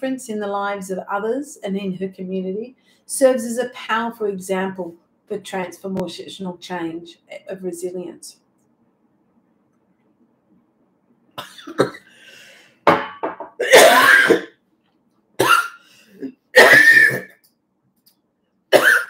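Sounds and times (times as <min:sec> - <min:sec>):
woman coughing: 0:11.4 - 0:12.1, 0:13.6 - 0:14.5, 0:15.4 - 0:17.3, 0:18.7 - 0:19.0.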